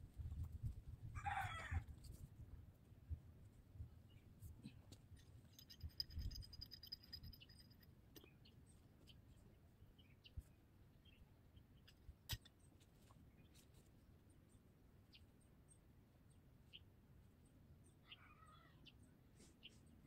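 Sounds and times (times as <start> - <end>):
faint clicks and scrapes: 4.4 - 9.4.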